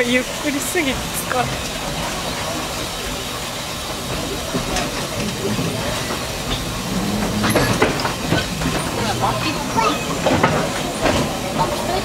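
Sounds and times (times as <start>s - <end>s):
train carriage rumble and hiss: 0.0s - 12.0s
wheel clicks over rails: 4.0s - 12.0s.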